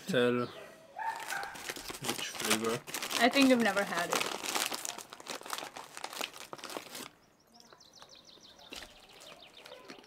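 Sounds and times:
plastic snack packet crinkling: 1.2s - 7.1s, 8.8s - 10.0s.

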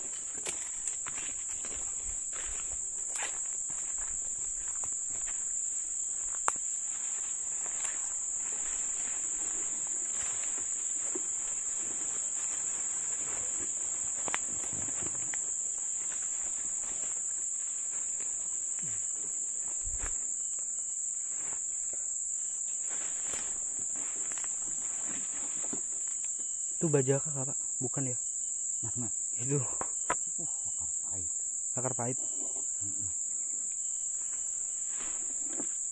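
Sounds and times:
insects droning: 0.0s - 35.9s.

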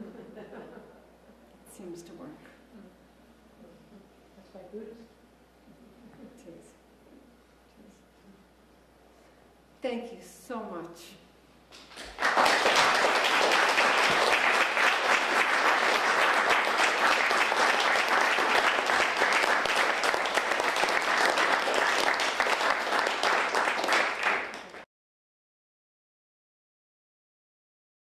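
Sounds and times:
audience applauding: 11.7s - 24.9s.

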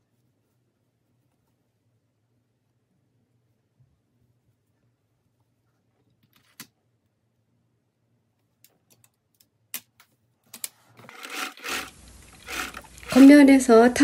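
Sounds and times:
soft fabric rustle: 0.0s - 2.1s.

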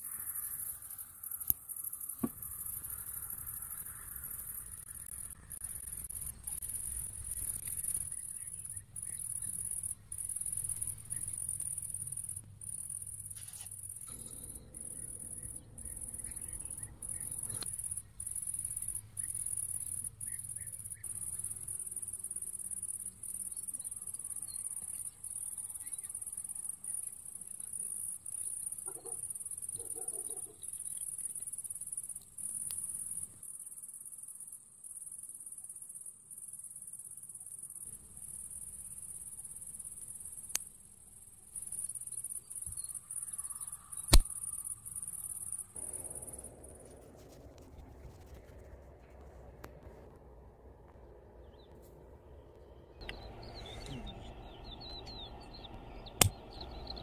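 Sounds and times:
crickets chirping: 0.0s - 49.6s
sharp click: 44.1s - 44.4s.

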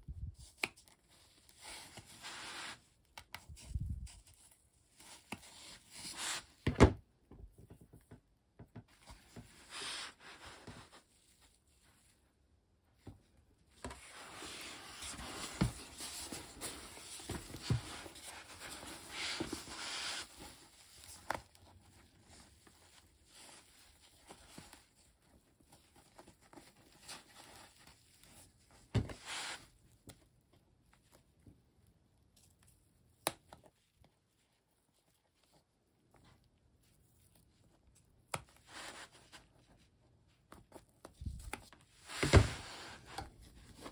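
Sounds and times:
vinyl rustling and crinkling: 8.9s - 31.6s, 33.5s - 43.9s.

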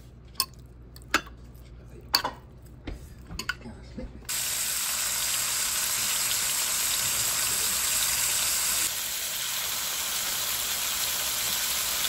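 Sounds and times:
shrimp sizzling in hot oil: 4.3s - 12.0s.

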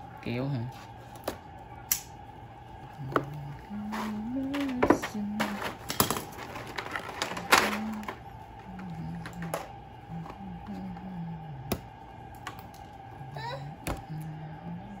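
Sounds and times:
plastic toy pieces clattering: 3.9s - 8.2s, 9.2s - 9.7s.

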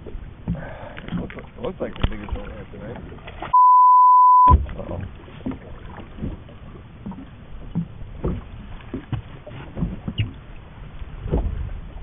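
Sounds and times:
soft thumps and knocks: 11.2s - 11.7s.

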